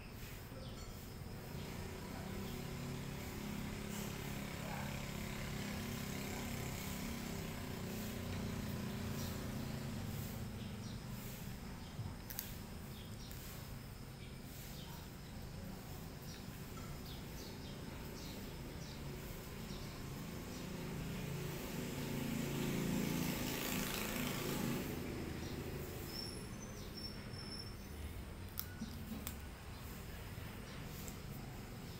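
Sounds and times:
passing vehicle rumble: 1.3 - 31.9
high bird chirps: 25.4 - 29.1.

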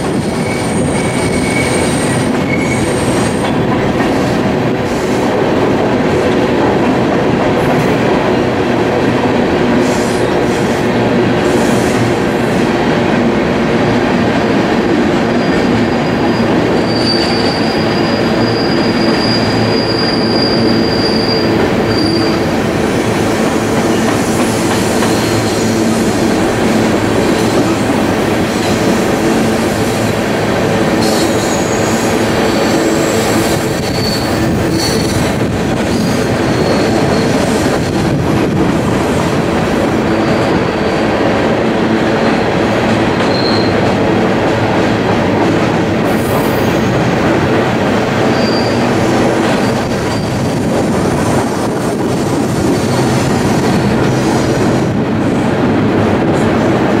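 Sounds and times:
freight train wheels rumbling: 0.0 - 57.0
high wheel squeal: 0.1 - 3.4, 15.3 - 22.5, 31.0 - 35.3, 35.9 - 37.6, 43.3 - 43.8, 48.2 - 49.0, 49.6 - 50.6.

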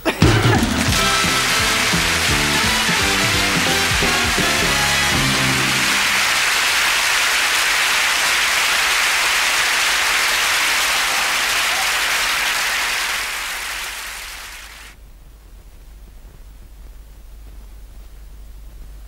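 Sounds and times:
audience applauding: 0.2 - 14.9.

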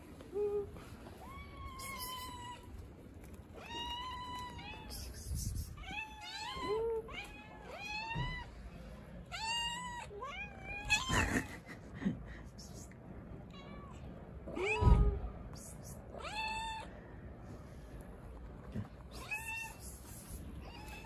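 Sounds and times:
cats meowing: 0.7 - 11.6, 13.4 - 17.0, 18.8 - 21.0.

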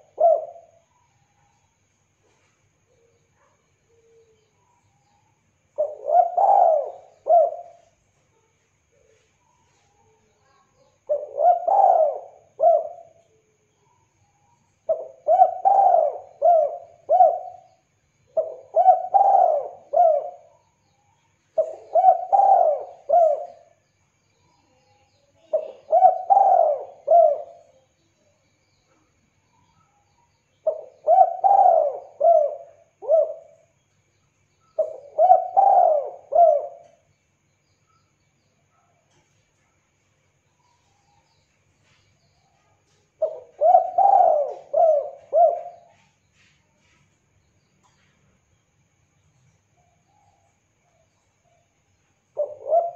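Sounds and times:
dove cooing: 0.0 - 0.8, 5.8 - 8.0, 11.0 - 13.2, 14.9 - 17.8, 18.4 - 20.6, 21.6 - 23.8, 25.4 - 27.8, 30.6 - 33.7, 34.8 - 37.1, 42.9 - 46.1, 52.4 - 52.9.

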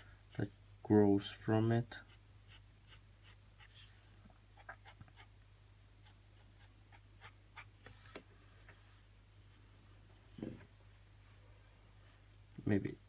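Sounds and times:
pencil scratching on paper: 2.0 - 4.0, 4.6 - 5.3, 6.0 - 7.7.

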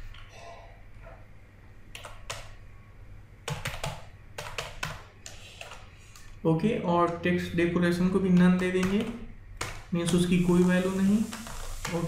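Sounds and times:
typing on keyboard: 1.9 - 2.6, 3.4 - 5.8, 8.3 - 9.8.

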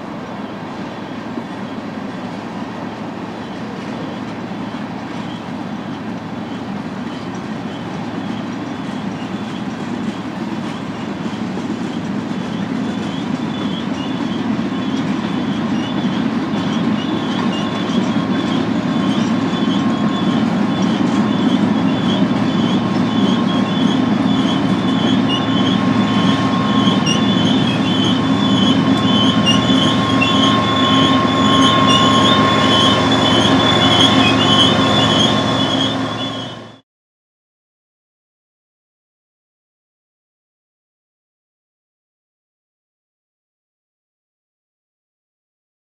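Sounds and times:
train wheels rumbling on rail: 0.0 - 36.8
wheel squeal chirps: 0.4 - 36.8
low steady whine: 15.0 - 36.8.

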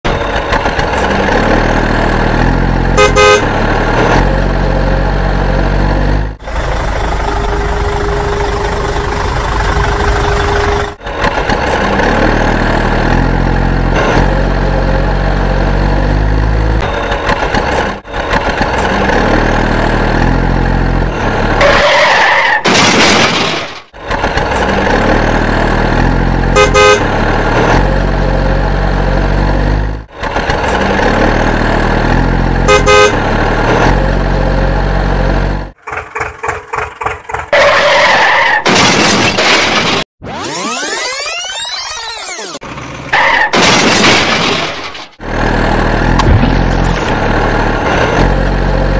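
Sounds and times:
truck engine running: 0.1 - 21.6, 23.8 - 38.4, 42.1 - 48.9
truck horn toots: 2.5 - 4.0, 26.4 - 27.4, 32.5 - 33.6.

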